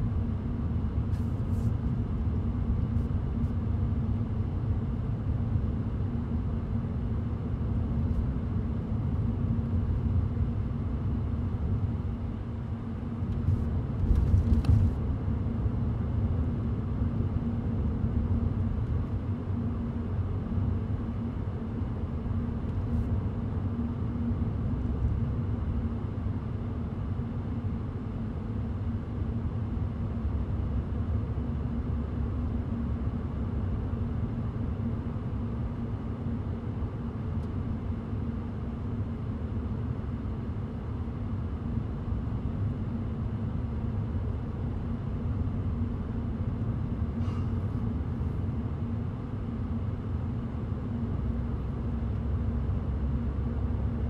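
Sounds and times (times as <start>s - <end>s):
steady low hum: 0.0s - 54.0s
car road rumble: 13.0s - 17.4s.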